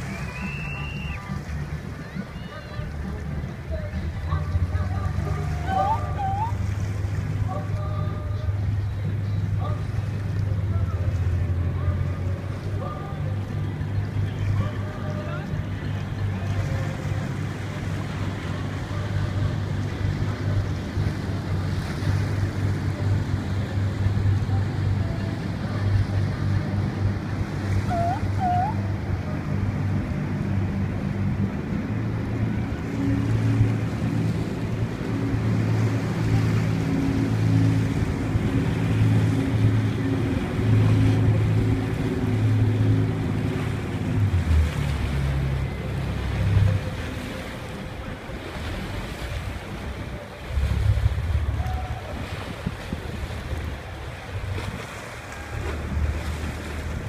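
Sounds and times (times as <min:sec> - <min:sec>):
water and waves: 0:00.0 - 0:57.0
wind buffeting microphone: 0:47.8 - 0:57.0.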